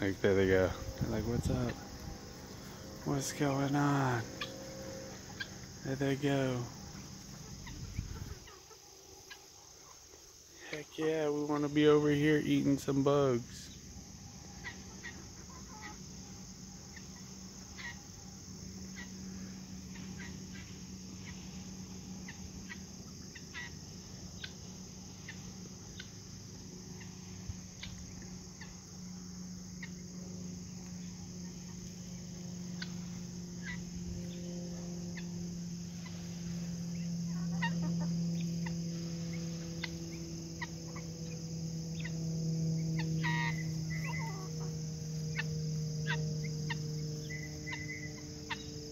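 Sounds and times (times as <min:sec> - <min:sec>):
chickens clucking: 0:00.0 - 0:11.8, 0:14.4 - 0:34.4, 0:36.7 - 0:42.1, 0:43.0 - 0:45.5.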